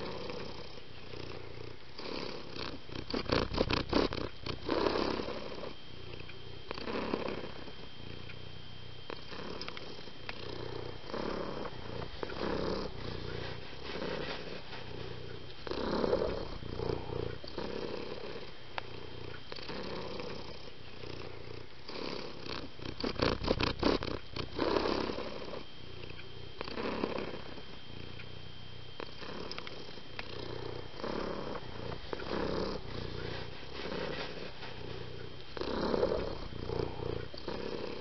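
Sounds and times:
cat purring: 0.0s - 38.0s.

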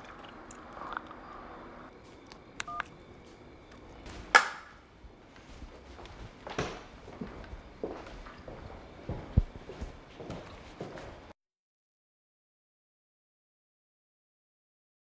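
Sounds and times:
phone key beeps: 2.6s - 2.9s.

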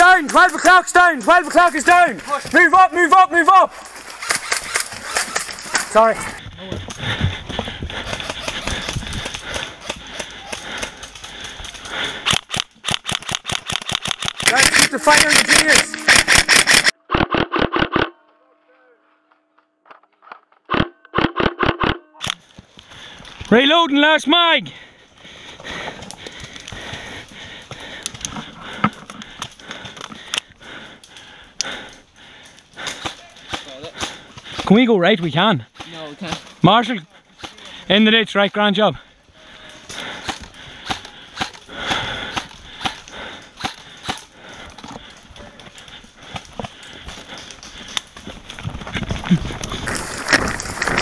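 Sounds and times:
rustling through undergrowth: 3.7s - 6.4s, 43.8s - 51.0s
airsoft rifle shots: 12.3s - 18.1s, 20.7s - 22.0s.

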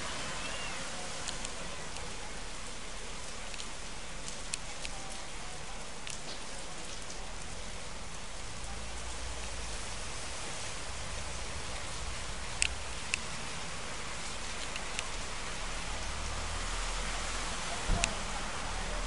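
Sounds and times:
heavy rain on street: 0.0s - 19.0s.

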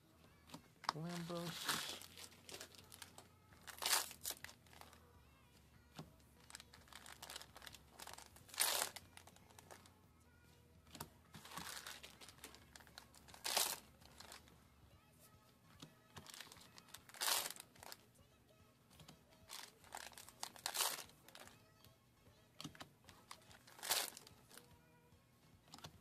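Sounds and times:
foil packs crinkling and tearing: 1.1s - 4.9s, 6.5s - 9.2s, 11.4s - 14.4s, 16.2s - 18.0s, 19.5s - 21.4s, 23.3s - 24.4s.

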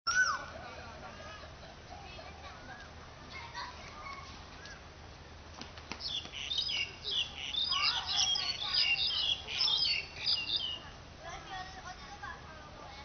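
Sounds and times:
birds chirping: 5.8s - 11.5s.

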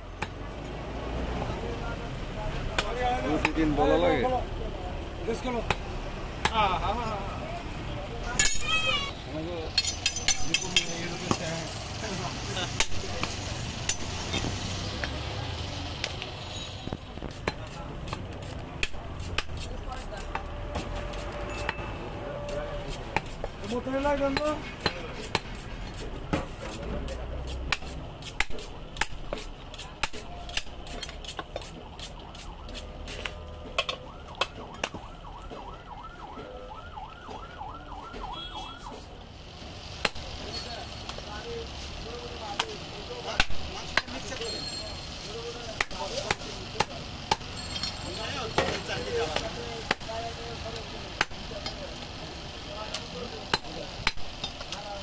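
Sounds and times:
cleaver chopping on wood block: 5.6s - 6.6s, 17.3s - 21.8s, 22.9s - 33.2s, 40.0s - 40.2s, 43.4s - 44.2s, 45.8s - 47.5s, 48.6s - 50.1s, 51.2s - 51.4s, 53.5s - 54.7s
warbling siren: 31.8s - 39.0s.

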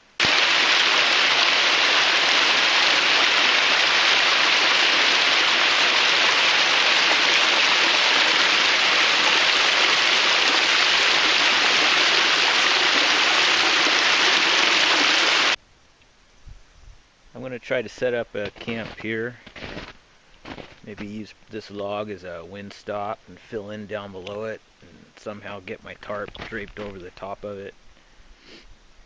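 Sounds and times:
water rushing over rocks: 0.0s - 15.6s.

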